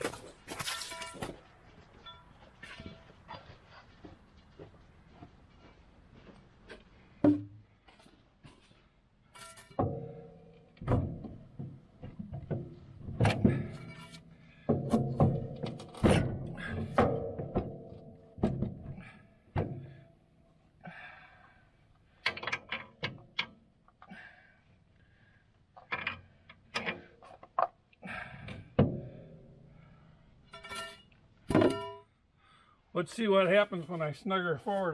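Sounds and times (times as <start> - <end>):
tools clanking on steel: 0.0 - 1.4, 9.3 - 20.0, 22.2 - 24.1, 25.8 - 27.8, 30.4 - 32.1.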